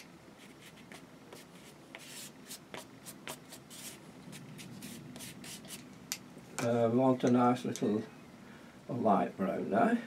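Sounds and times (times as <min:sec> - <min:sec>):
paintbrush brushing on paper: 0:00.4 - 0:05.8.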